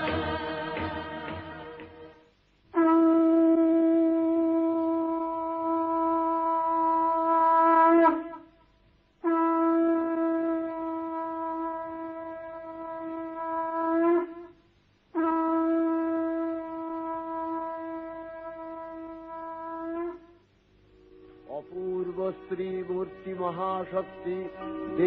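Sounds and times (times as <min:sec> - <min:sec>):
conch shell blasts: 0:02.7 - 0:08.5, 0:09.2 - 0:20.4.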